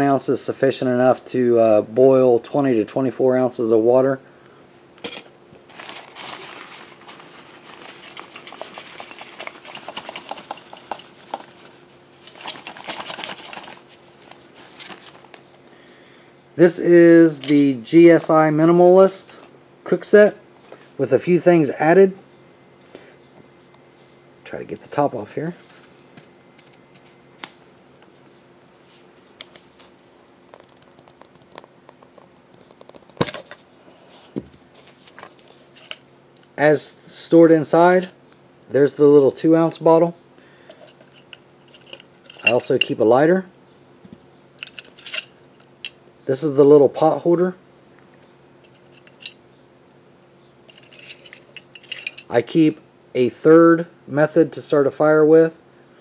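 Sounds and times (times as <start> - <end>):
faint steady hum: 0.0 - 56.0
gear rustling and clattering: 5.7 - 15.4, 40.7 - 42.9, 44.6 - 46.0, 48.6 - 49.4, 50.7 - 52.3.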